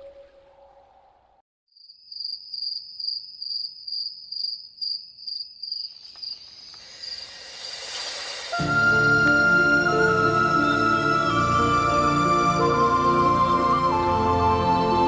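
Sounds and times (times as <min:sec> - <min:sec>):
crickets chirping: 0:01.7 - 0:08.5
rising hiss: 0:06.7 - 0:12.0
music tune: 0:07.8 - 0:15.0.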